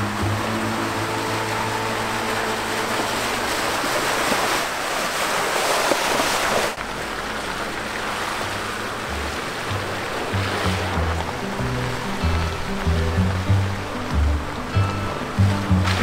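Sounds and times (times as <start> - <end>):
faint background music: 8.4 - 16.0.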